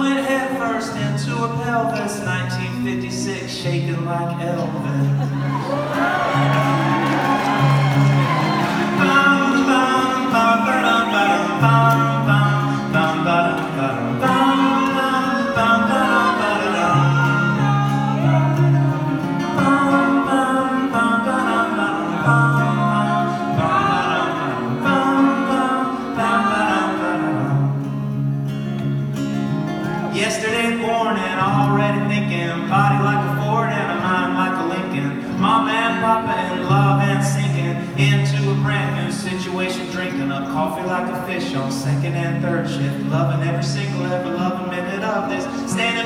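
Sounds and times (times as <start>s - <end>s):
strummed acoustic guitar: 0.0s - 46.0s
men singing: 8.3s - 27.8s, 30.1s - 46.0s.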